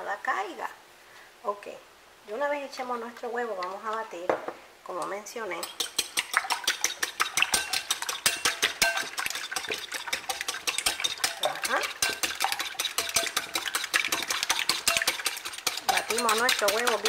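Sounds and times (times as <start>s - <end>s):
whisk clicking against glass bowl: 5.6s - 17.0s.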